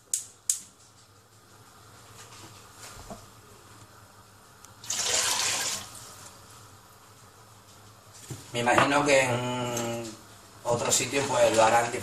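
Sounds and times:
gas stove igniter clicking: 0:00.1 - 0:00.6.

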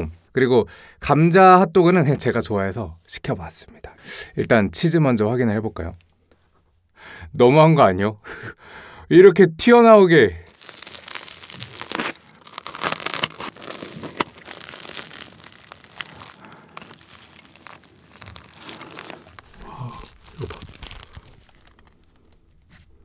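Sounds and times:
crispy crust crackling and tearing: 0:10.5 - 0:23.0.

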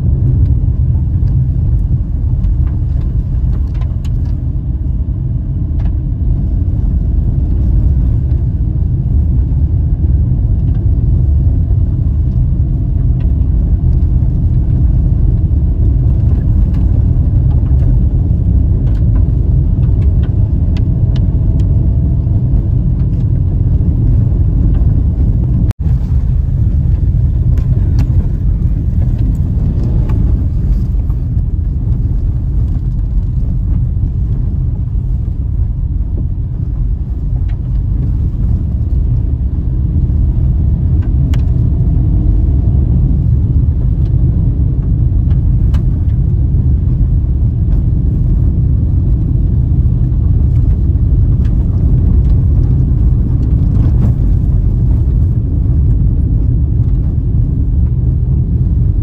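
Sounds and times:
car driving on gravel road: 0:00.0 - 0:59.0
light ticks: 0:41.0 - 0:41.6.

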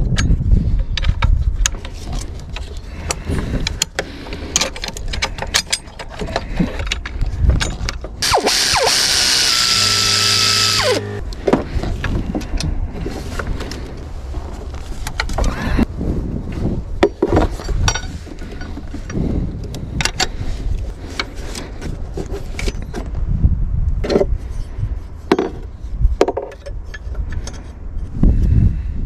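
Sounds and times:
metal tools clinking and knocking: 0:04.5 - 0:08.1, 0:17.1 - 0:19.0.

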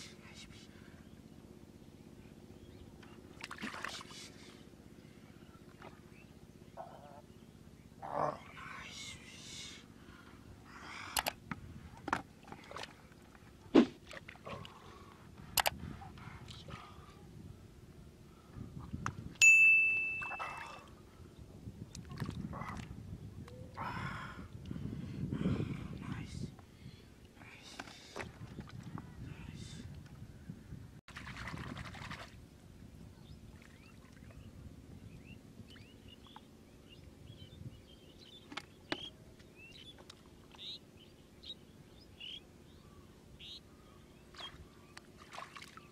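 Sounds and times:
liquid splashing into pool: 0:03.4 - 0:04.1, 0:31.1 - 0:32.4, 0:45.1 - 0:45.9
small birds chirping: 0:33.1 - 0:45.1.

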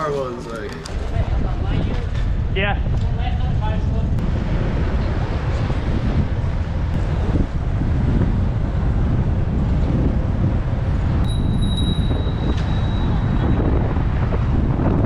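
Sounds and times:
road noise rumble: 0:00.0 - 0:15.0
wind buffeting microphone: 0:00.0 - 0:15.0
thin high-pitched tone: 0:11.3 - 0:13.4.

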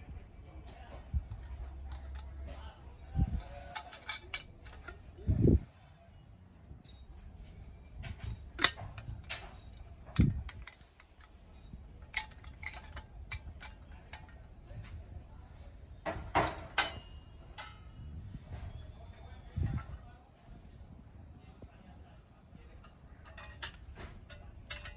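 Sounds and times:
metal items clinking: 0:01.1 - 0:05.1, 0:06.9 - 0:14.9, 0:16.0 - 0:17.9, 0:22.8 - 0:24.9.

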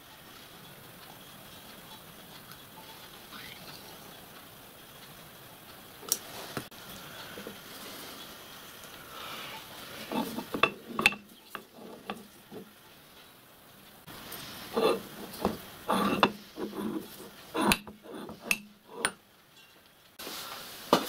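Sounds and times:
metal blocks scraping: 0:09.5 - 0:12.8, 0:14.2 - 0:19.7.

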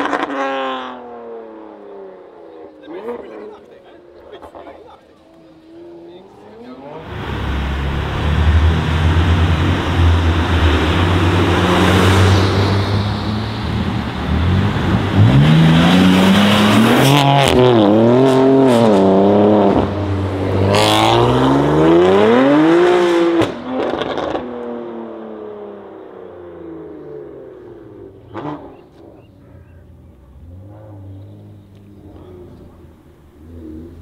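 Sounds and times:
car engines accelerating: 0:00.0 - 0:34.0
exhaust cracks: 0:27.5 - 0:34.0.

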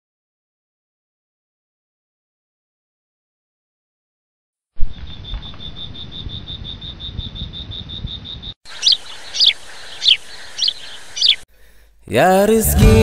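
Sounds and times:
rapid insect trill: 0:04.8 - 0:11.4.

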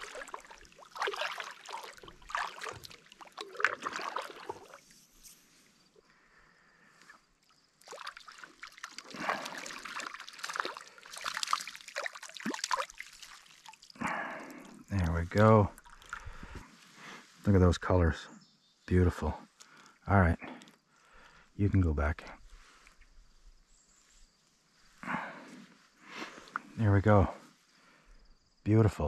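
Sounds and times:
water dripping: 0:00.0 - 0:04.8, 0:07.8 - 0:16.6
paddle splashing water: 0:00.0 - 0:05.2, 0:07.8 - 0:15.2, 0:15.8 - 0:17.0.

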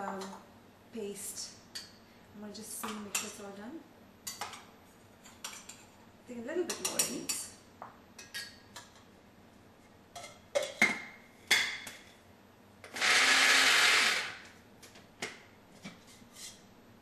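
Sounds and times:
electric grinder running: 0:12.9 - 0:14.4.

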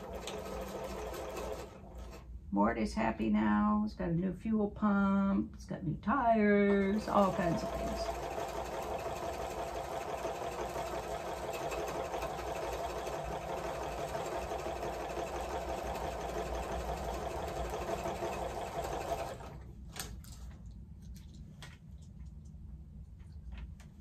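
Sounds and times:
electric sewing machine running: 0:00.0 - 0:02.2, 0:06.7 - 0:19.6.

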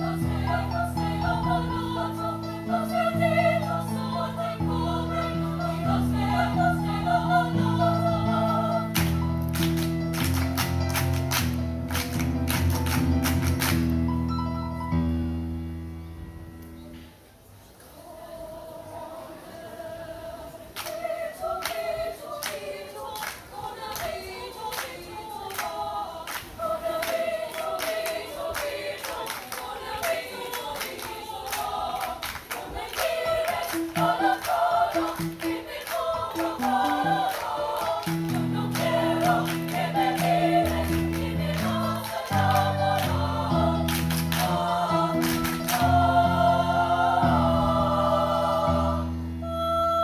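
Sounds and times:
choir singing: 0:00.0 - 0:09.7, 0:17.8 - 0:50.0
rhythmic hand clapping: 0:08.4 - 0:14.0, 0:20.8 - 0:46.3.

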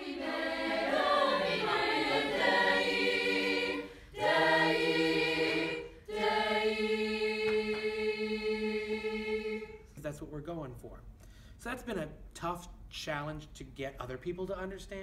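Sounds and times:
choir singing a cappella: 0:00.0 - 0:10.0.

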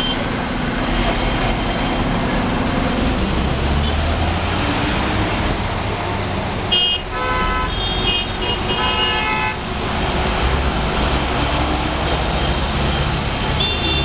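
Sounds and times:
diesel bus engine rumbling: 0:00.0 - 0:14.0
vehicle horns honking: 0:06.7 - 0:09.6, 0:13.6 - 0:14.0.

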